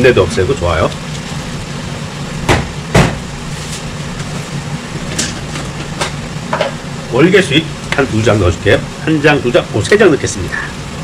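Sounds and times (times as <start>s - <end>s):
water boiling hard: 0.0s - 11.0s
sharp knocks: 2.5s - 3.2s.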